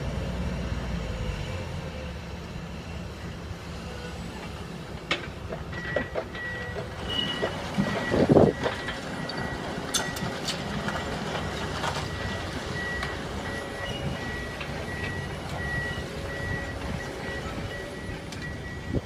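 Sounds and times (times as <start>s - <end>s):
diesel engine rumble: 0.0s - 19.0s
reversing alarm beeping: 5.7s - 10.6s, 12.0s - 19.0s.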